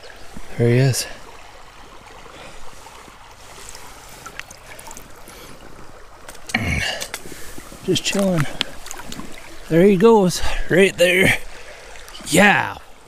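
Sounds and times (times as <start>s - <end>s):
stream water running: 0.0s - 13.0s
small clicks and splashes: 3.4s - 9.8s.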